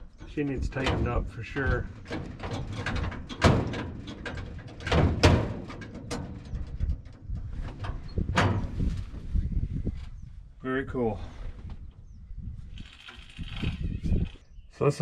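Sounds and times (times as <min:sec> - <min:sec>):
gear shifter metal clunks and rattles: 0:00.1 - 0:09.1.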